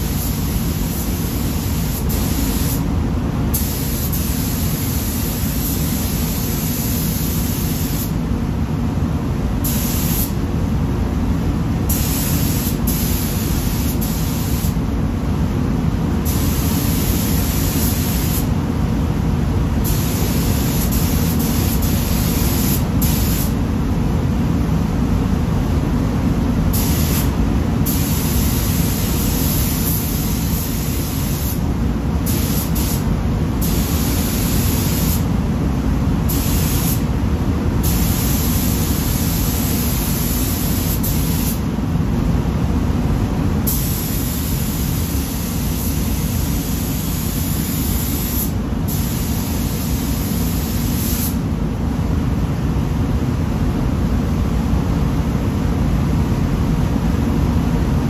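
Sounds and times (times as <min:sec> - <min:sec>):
paint spray gun hissing: 0:00.0 - 0:02.9, 0:03.5 - 0:08.2, 0:09.6 - 0:10.4, 0:11.9 - 0:14.8, 0:16.3 - 0:18.5, 0:19.8 - 0:23.6, 0:27.9 - 0:31.6, 0:32.2 - 0:35.3, 0:36.3 - 0:37.0, 0:37.8 - 0:41.6, 0:43.7 - 0:51.4
low air system rumble: 0:00.0 - 0:58.0.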